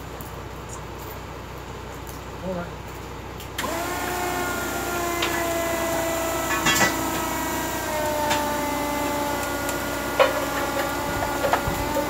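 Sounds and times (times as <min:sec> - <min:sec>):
forklift hydraulics whining: 0:03.6 - 0:12.0.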